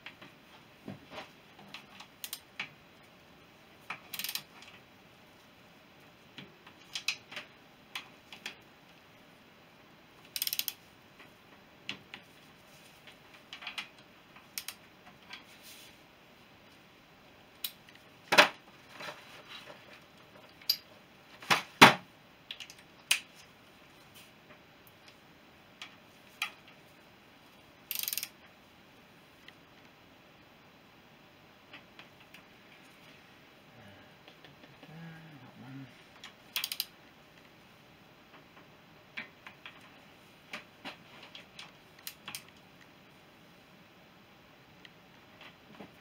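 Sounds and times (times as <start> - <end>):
socket ratchet clicking: 2.2 - 2.4, 4.1 - 4.5, 10.3 - 10.8, 14.5 - 14.8, 27.9 - 28.3, 36.5 - 36.9.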